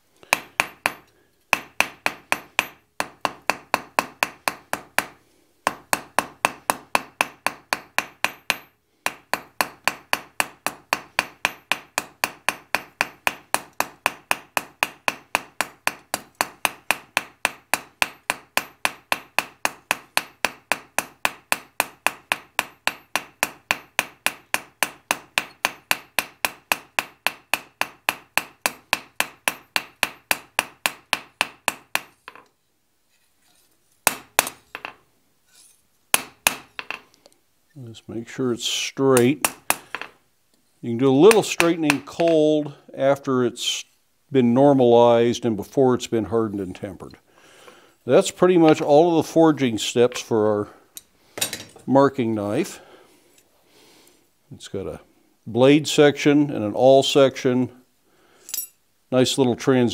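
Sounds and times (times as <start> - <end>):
hammer striking steel on anvil: 0.3 - 32.5, 34.1 - 35.0, 36.2 - 37.0, 41.3 - 42.4.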